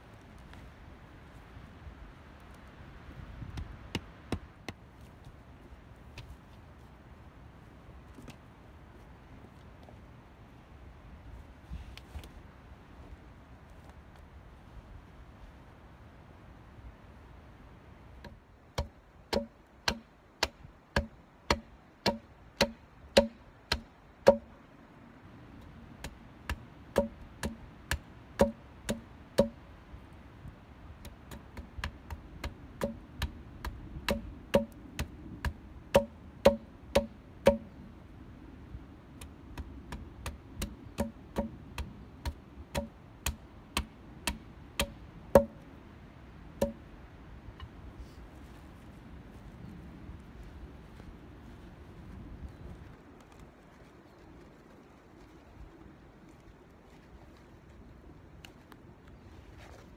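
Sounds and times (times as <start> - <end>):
hatchet chopping wooden peg: 3.5 - 4.8, 18.2 - 24.5, 26.0 - 29.6, 31.0 - 37.7, 39.2 - 45.6, 46.6 - 46.8.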